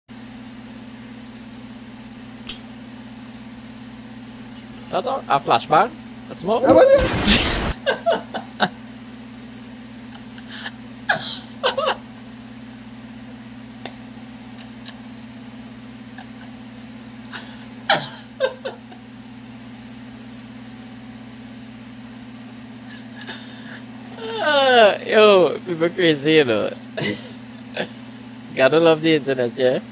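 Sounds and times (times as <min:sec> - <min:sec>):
low electrical hum: 0:00.1 - 0:29.9
man's stifled laughter: 0:06.7 - 0:08.8, 0:10.1 - 0:12.1, 0:14.4 - 0:15.2, 0:16.0 - 0:16.7, 0:17.3 - 0:19.0, 0:22.9 - 0:25.0, 0:27.0 - 0:28.0.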